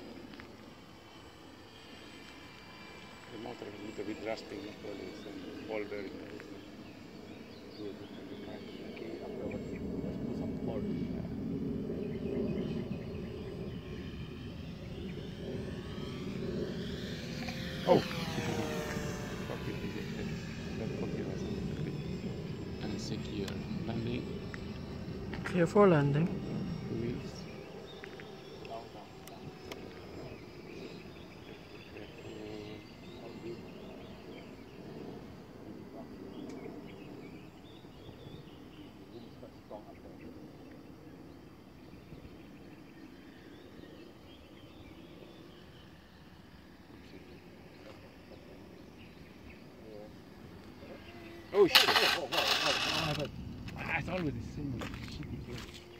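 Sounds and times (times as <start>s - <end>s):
model plane motor whine: 0.0s - 55.9s
small birds chirping: 0.0s - 55.9s
wind noise: 51.7s - 55.9s.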